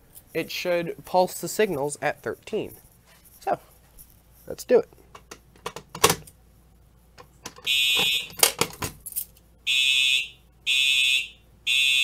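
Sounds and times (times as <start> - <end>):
fire alarm horn blasts: 7.7 - 8.4, 9.6 - 12.0.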